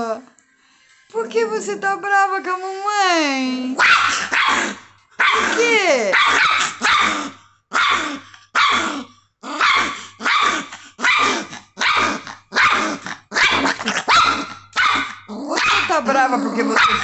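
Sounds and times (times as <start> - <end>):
dog barking and growling: 3.7 - 17.0.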